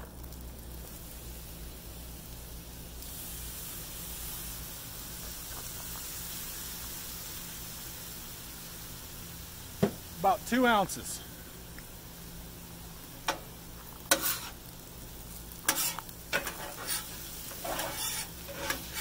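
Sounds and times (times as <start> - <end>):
food sizzling on a griddle: 0.0 - 19.0.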